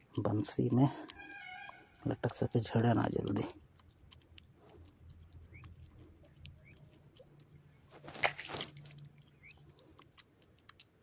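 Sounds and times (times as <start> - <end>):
wet bait squelching in hand: 8.0 - 11.0.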